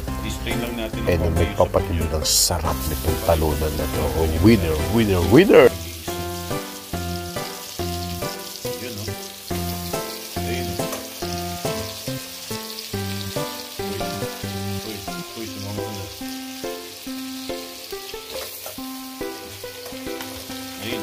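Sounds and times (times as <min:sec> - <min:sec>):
background music with bass line: 0:00.0 - 0:08.4, 0:09.1 - 0:17.7
meat and ginger sizzling in a pan: 0:00.0 - 0:21.0.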